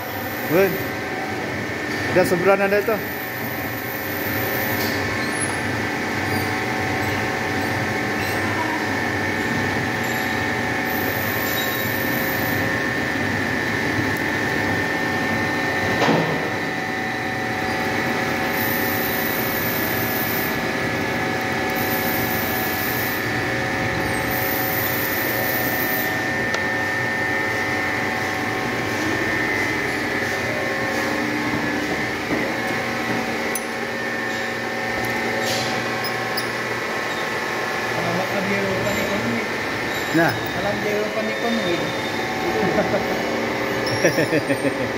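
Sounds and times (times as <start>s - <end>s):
milling machine cutting metal: 16.5s - 42.9s.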